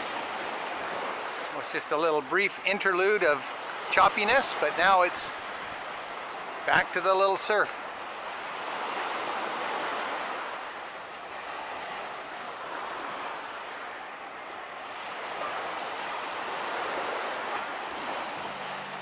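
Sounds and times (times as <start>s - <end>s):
surf washing up a beach: 0.0s - 19.0s.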